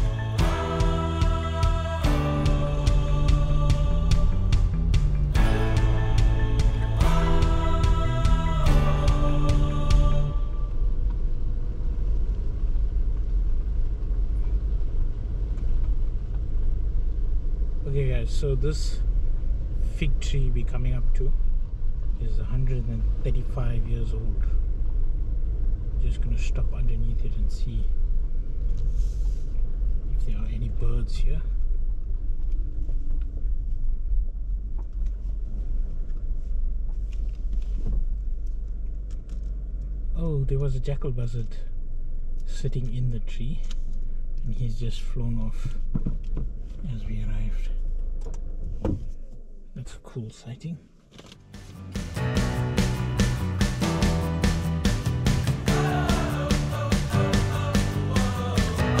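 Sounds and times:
car driving on dirt road: 8.6 - 44.5.

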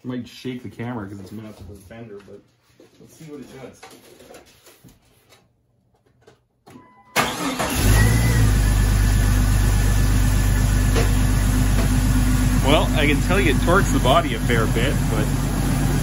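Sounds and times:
car engine starting and idling: 7.2 - 16.0.

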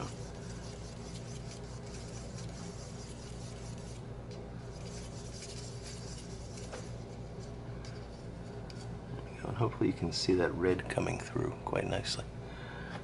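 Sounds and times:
wooden stick stirring in plastic cup: 0.0 - 8.9
low hum and hiss: 0.0 - 13.0.

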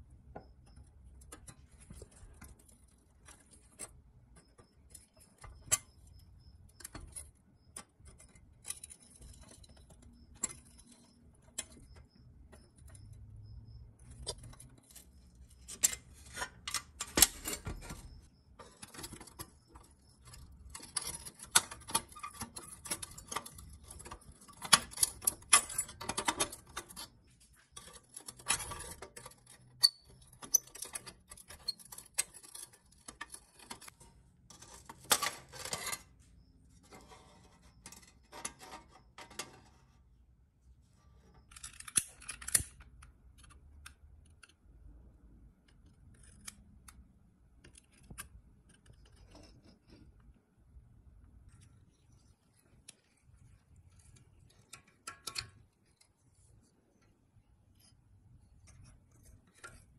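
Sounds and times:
pliers clicking on metal: 41.5 - 44.6.

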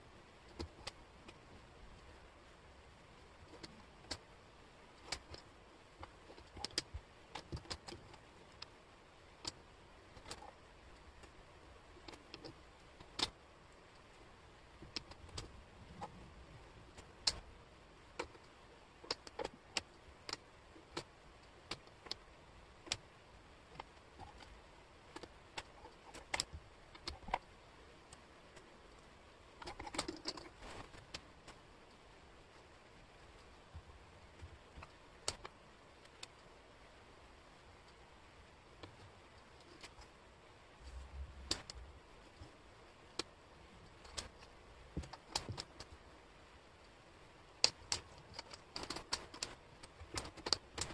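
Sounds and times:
wooden puzzle pieces clicking: 5.0 - 8.7, 12.0 - 13.4, 14.7 - 16.2, 16.9 - 17.4, 18.1 - 23.1, 25.1 - 27.5, 29.6 - 31.6, 41.4 - 41.8, 42.4 - 46.0, 47.5 - 50.9.

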